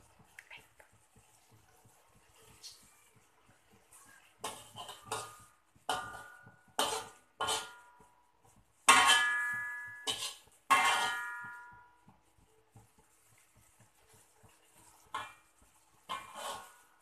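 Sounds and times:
metal spatula scraping wok: 3.7s - 17.0s.

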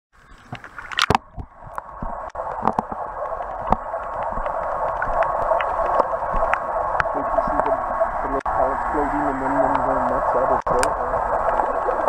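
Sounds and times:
muffled underwater rushing: 0.2s - 12.0s
clicks and ticks: 0.5s - 8.5s, 9.6s - 11.7s
camera splashing into water: 0.6s - 1.4s.

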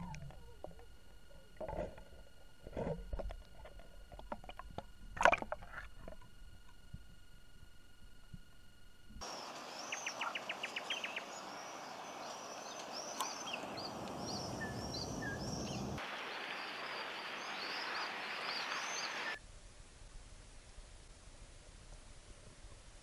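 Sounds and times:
outdoor ambience: 0.0s - 23.0s.

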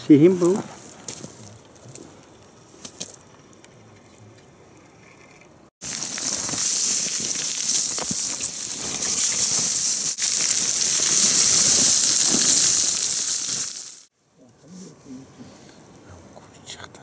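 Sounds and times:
loud rushing hiss: 5.8s - 14.1s.

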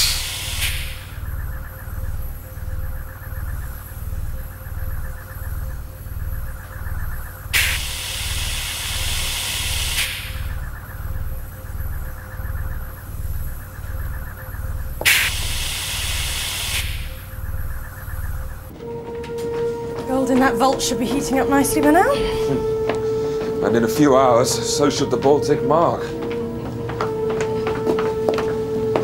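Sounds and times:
gas hissing from a nozzle: 0.0s - 1.0s, 7.6s - 10.5s, 15.0s - 17.1s
faint steady hum: 0.0s - 29.0s
low pulsing machine throb: 0.0s - 29.0s.

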